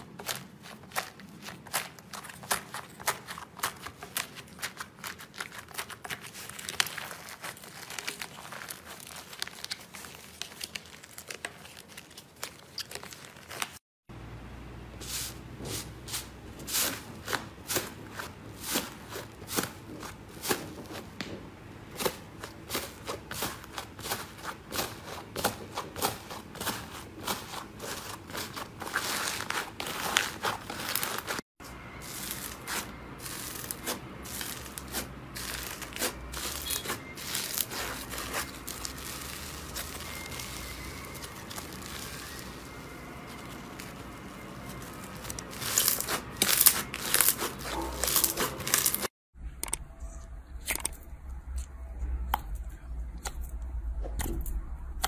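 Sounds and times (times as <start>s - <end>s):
slime crust crackling: 0.0s - 13.8s, 22.0s - 31.4s, 32.0s - 49.1s.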